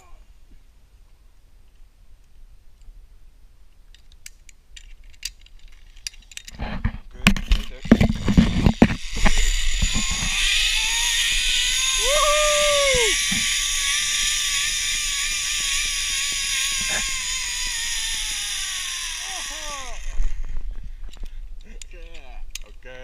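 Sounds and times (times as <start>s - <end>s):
carabiners clicking and clanking: 3.9s - 20.3s, 21.1s - 22.8s
pulley whirring along cable: 7.4s - 20.6s
rising and falling tone: 9.1s - 15.4s.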